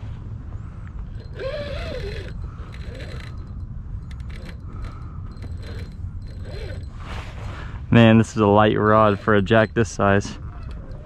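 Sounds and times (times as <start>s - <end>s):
fishing reel gears whirring: 1.1s - 7.0s, 8.8s - 10.0s.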